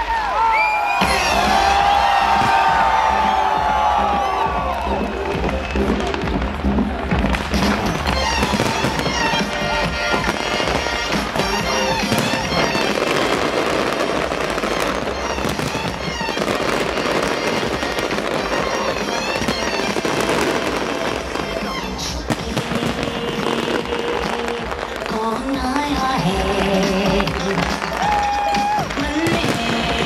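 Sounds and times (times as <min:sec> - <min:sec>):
fireworks bursting and crackling: 0:00.0 - 0:30.0
music playing: 0:00.9 - 0:30.0.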